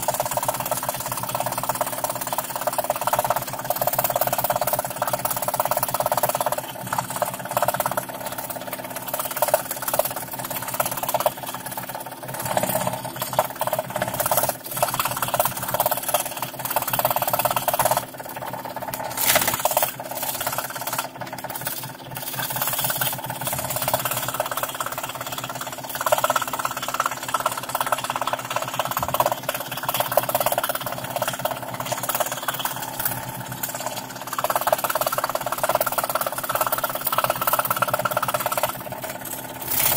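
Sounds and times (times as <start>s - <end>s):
scroll saw cutting plywood: 18.9s - 27.6s, 28.4s - 39.9s.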